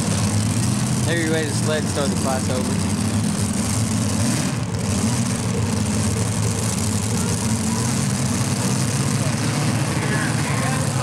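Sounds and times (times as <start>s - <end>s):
tractor engines idling: 0.0s - 11.0s.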